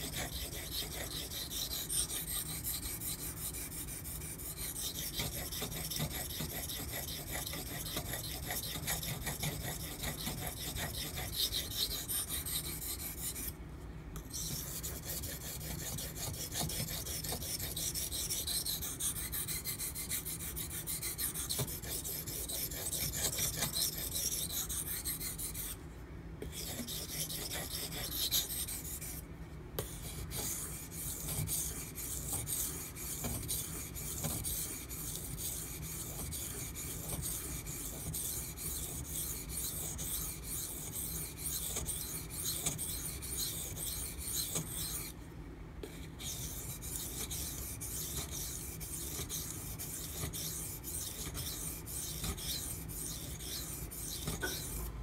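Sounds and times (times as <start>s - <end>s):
knife sharpening on whetstone: 0.0s - 3.1s, 3.8s - 13.5s, 14.3s - 25.8s, 26.5s - 29.2s, 29.9s - 45.1s, 46.2s - 54.9s.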